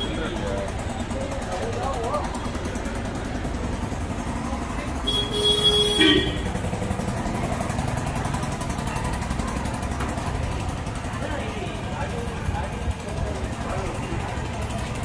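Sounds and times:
street traffic noise: 0:00.0 - 0:15.0
car horn blast: 0:05.0 - 0:06.5.

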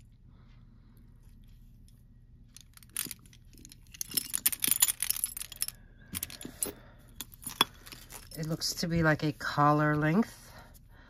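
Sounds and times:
metal necklace clinking: 0:01.8 - 0:09.1.

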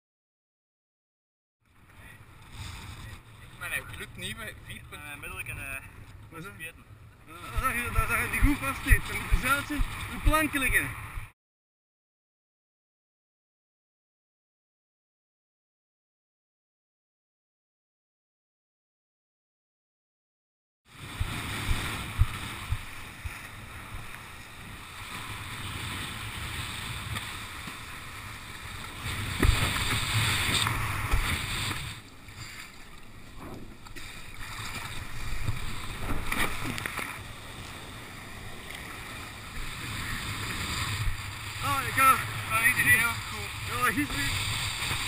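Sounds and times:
water rushing and splashing: 0:01.8 - 0:11.3, 0:20.9 - 0:45.0.

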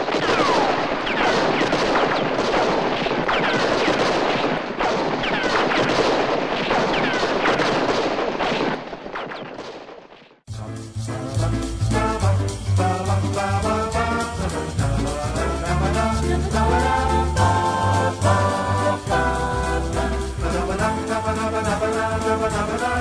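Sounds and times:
barrage of gunfire: 0:00.0 - 0:10.4
brass band music: 0:10.5 - 0:23.0.

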